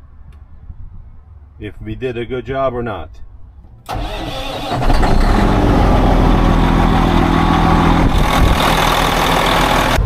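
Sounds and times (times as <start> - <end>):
diesel engine starting and idling: 3.8 - 10.0.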